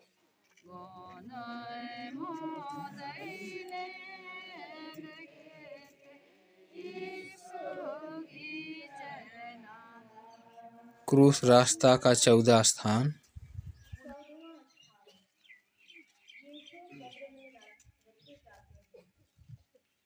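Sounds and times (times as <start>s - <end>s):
group singing a hymn: 0.6s - 13.1s.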